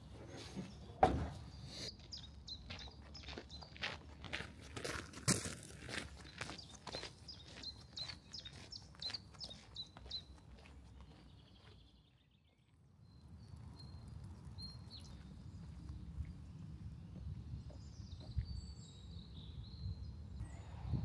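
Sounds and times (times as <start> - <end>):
bird chirp: 0.0 - 4.2, 6.2 - 16.4, 17.2 - 21.0
footsteps crunching on gravel: 2.0 - 11.9
faint low rush: 20.4 - 21.0.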